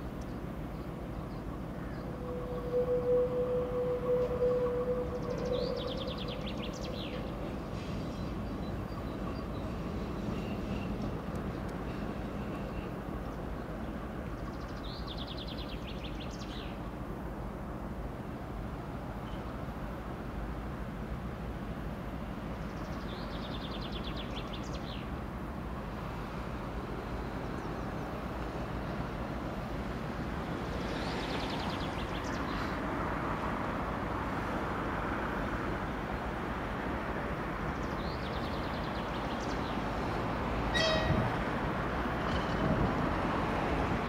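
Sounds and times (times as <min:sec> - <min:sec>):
diesel trains idling: 0:00.0 - 0:14.9
high chirping trills: 0:02.0 - 0:07.6.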